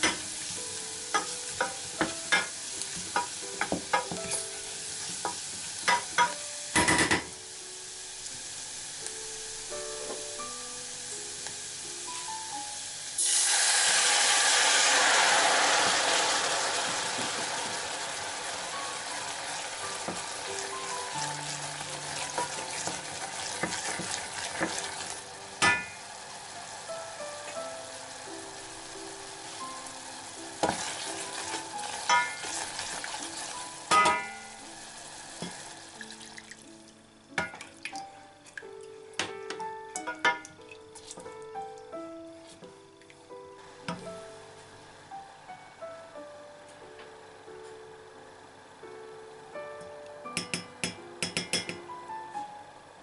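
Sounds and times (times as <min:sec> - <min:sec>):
onion sizzling in butter: 0:00.0 - 0:36.9
wine hissing in hot pan: 0:00.0 - 0:37.0
spoon knocking against pan: 0:50.4 - 0:51.9.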